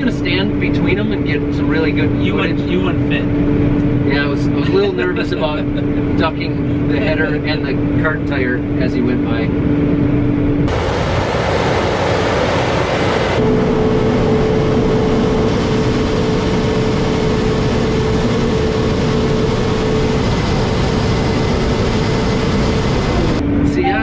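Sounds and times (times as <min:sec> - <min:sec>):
steady hum: 0:00.0 - 0:24.0
combine harvester running: 0:08.6 - 0:24.0.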